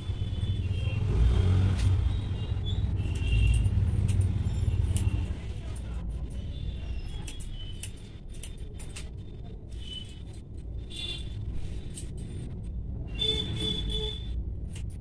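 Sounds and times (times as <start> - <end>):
scissors snipping hair: 3.1 - 6.3, 7.0 - 9.2.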